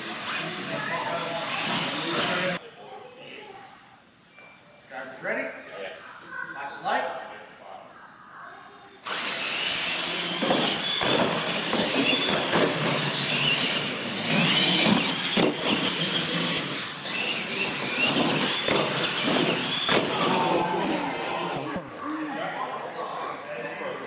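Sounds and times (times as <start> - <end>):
toy truck motors whining: 0.0 - 2.6, 9.0 - 21.8
tyres on concrete floor: 9.0 - 21.9.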